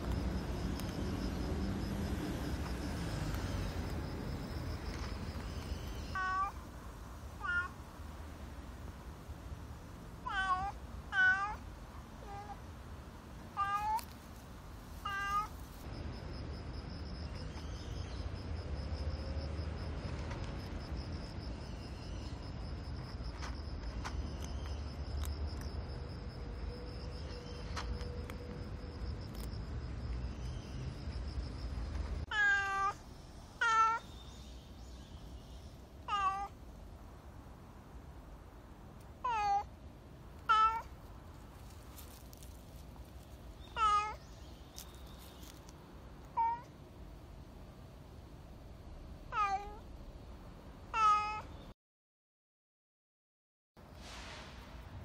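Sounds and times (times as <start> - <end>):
cat meowing: 6.1 - 6.6, 7.4 - 7.8, 10.2 - 11.6, 13.6 - 14.1, 15.0 - 15.5, 32.3 - 33.0, 33.6 - 34.1, 36.1 - 36.6, 39.2 - 39.7, 40.5 - 40.9, 43.7 - 44.2, 46.3 - 46.7, 49.3 - 49.8, 50.9 - 51.5.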